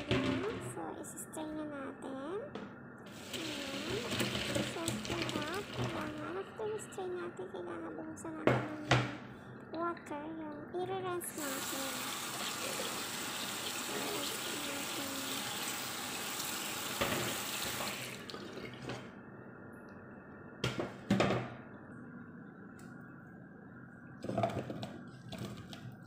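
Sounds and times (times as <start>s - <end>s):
tap water running into colander: 3.1s - 6.3s, 11.3s - 19.0s.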